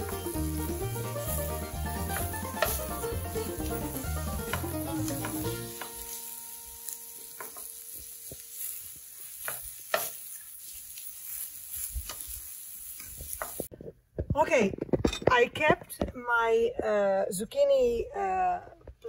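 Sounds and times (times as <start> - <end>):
background music: 0.0 - 7.5
utensils scraping griddle: 0.0 - 13.7
vegetables sizzling on griddle: 0.0 - 13.7.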